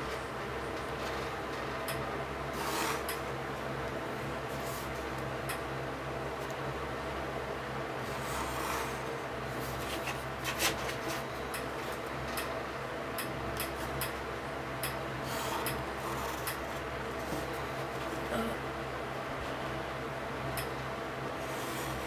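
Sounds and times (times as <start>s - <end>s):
steady low hum: 0.0s - 22.0s
pencil scratching on paper: 8.2s - 9.0s.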